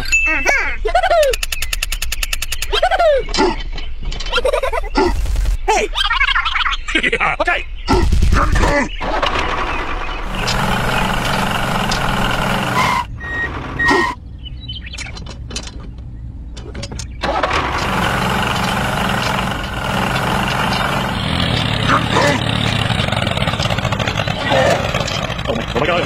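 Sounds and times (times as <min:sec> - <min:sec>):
small clicks: 0:01.2 - 0:02.7
heavy diesel engine running: 0:09.0 - 0:14.2, 0:17.2 - 0:26.0.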